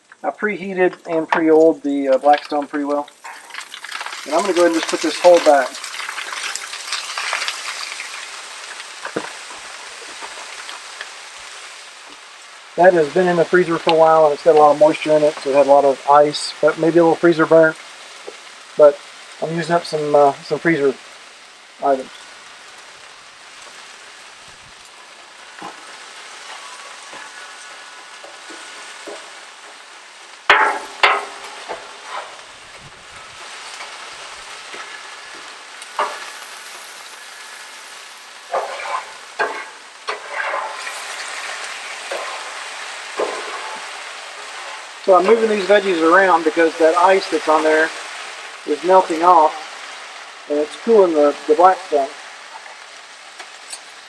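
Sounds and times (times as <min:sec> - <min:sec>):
vegetables sizzling on griddle: 0:00.0 - 0:54.0
metal spatula scraping griddle: 0:30.5 - 0:46.1
spatula clatters: 0:38.5 - 0:44.8.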